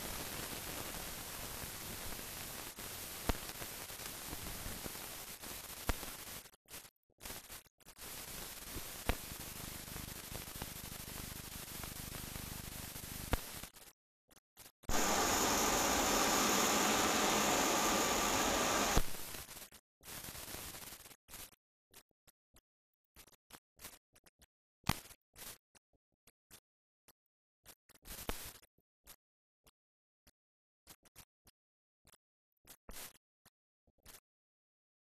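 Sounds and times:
film soundtrack hiss: 0.0 - 6.3, 14.9 - 19.1.

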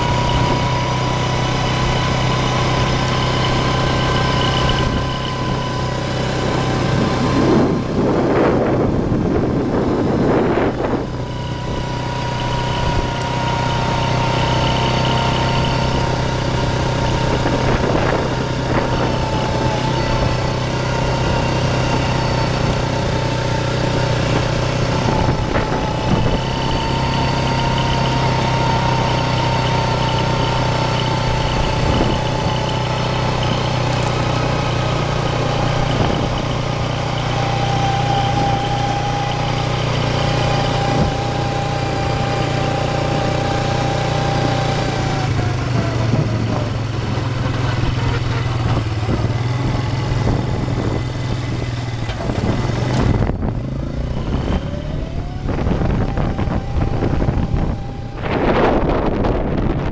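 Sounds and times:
vehicle engine running: 0.0 - 59.9
wavering whine: 0.0 - 59.9.

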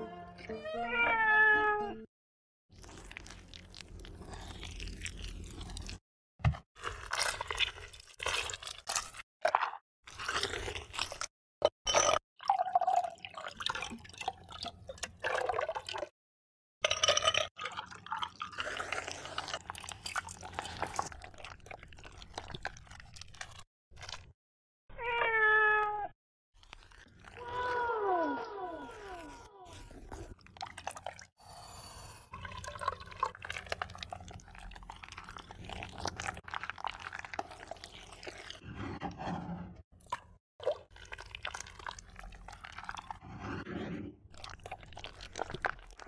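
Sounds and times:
cat meow: 0.1 - 2.0, 25.0 - 26.1
liquid pouring and dripping: 11.9 - 16.1, 17.0 - 24.2, 30.4 - 31.3, 32.4 - 38.6, 40.0 - 43.2.

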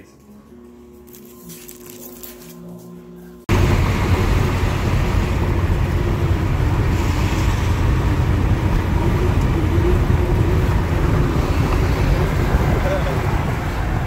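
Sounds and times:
road and wind noise in car: 3.5 - 14.0.

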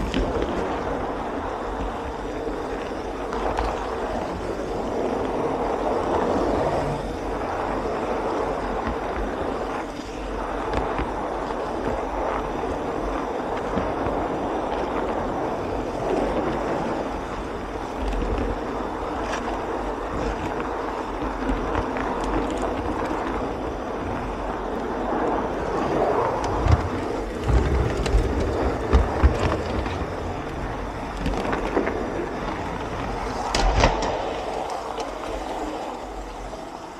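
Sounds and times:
model train wheels rolling: 0.0 - 36.9
clicks over rail joints: 26.4 - 36.5.

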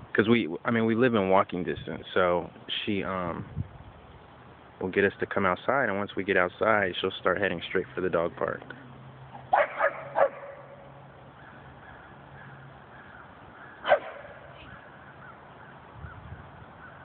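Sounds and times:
dog barking: 9.5 - 10.7, 13.8 - 14.4.

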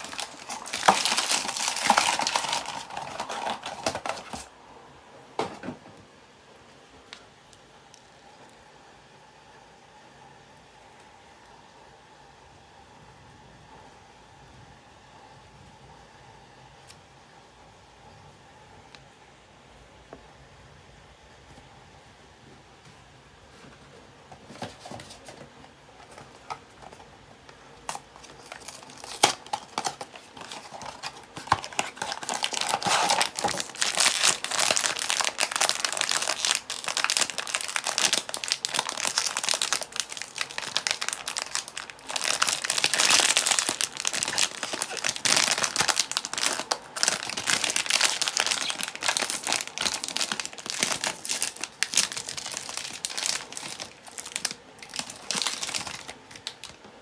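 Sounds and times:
foil bag crinkling: 0.0 - 4.5, 27.8 - 56.8.

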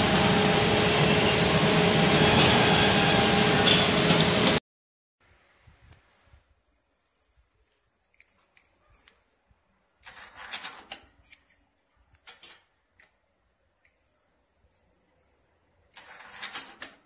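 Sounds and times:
harsh rush of machine noise: 0.0 - 4.6.

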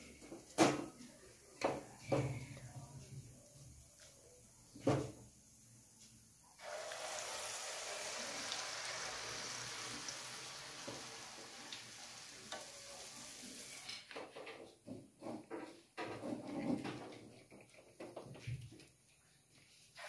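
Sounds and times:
batter sizzling in hot oil: 6.6 - 13.9.

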